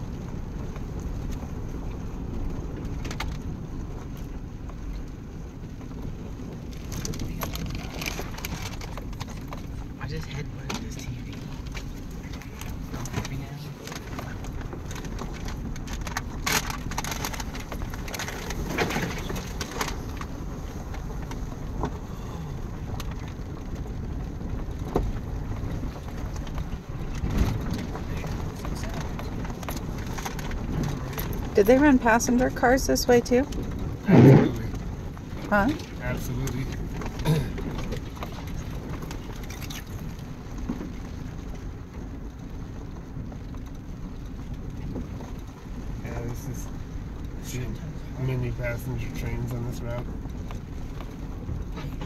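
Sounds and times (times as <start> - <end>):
vehicle low rumble: 0.0 - 52.0
cracks and knocks: 10.7 - 20.3.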